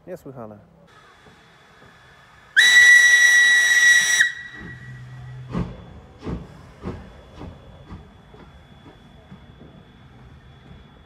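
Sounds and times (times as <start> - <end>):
steam hiss: 0.9 - 7.2
steam engine exhaust chuffs: 0.9 - 9.4
steam locomotive whistle: 2.6 - 5.3.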